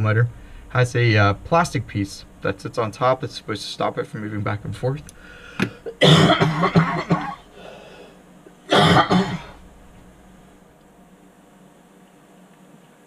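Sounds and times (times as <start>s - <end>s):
man clearing his throat: 5.7s - 7.5s, 8.7s - 9.6s
man coughing: 5.7s - 7.8s, 8.7s - 9.6s.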